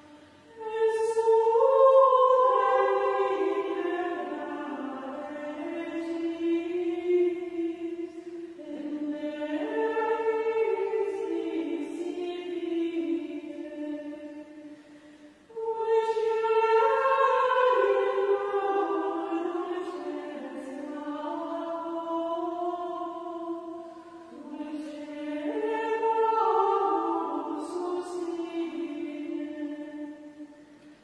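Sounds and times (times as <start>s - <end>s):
choir chanting in unison: 0.5s - 14.9s, 15.5s - 30.6s.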